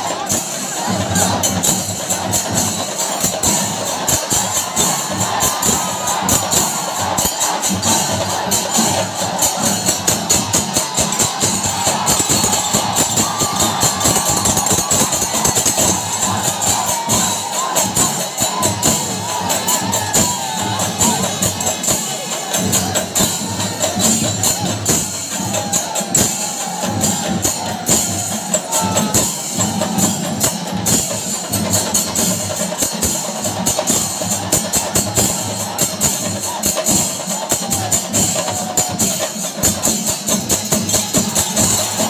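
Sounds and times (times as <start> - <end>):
crowd voices: 0.0 - 42.0
drums beaten in fast rhythm: 0.0 - 42.0
hand cymbals clashing: 0.0 - 42.0.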